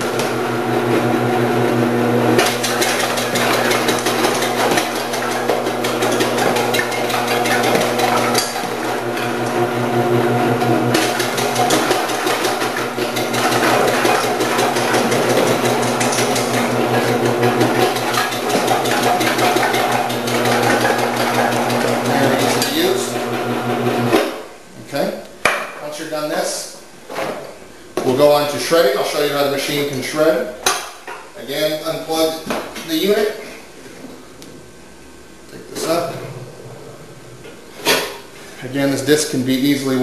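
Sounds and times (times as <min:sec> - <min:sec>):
vegetable cutter motor hum: 0:00.1 - 0:24.1.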